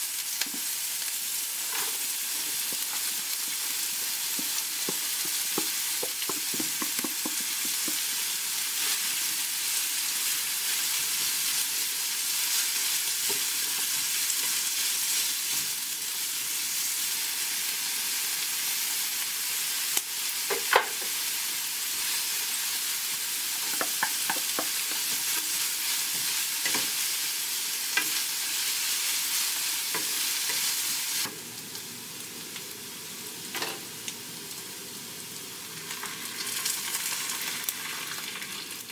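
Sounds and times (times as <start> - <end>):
meat and onion sizzling in a pan: 0.0 - 38.9
wooden spatula knocking on pan: 4.4 - 8.2, 23.7 - 25.1.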